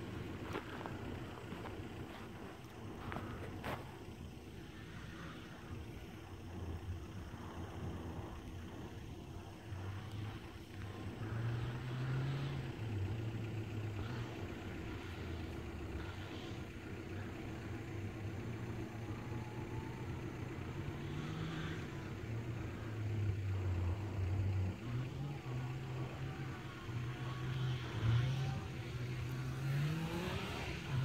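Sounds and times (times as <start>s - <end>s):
vehicle engine running: 0.0s - 31.0s.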